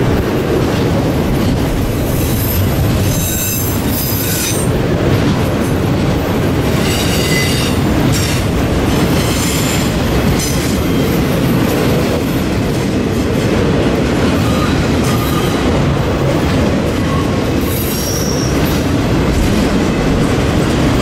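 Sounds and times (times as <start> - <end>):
train wheels rumbling on rail: 0.0 - 21.0
high-pitched wheel squeals: 6.8 - 7.8.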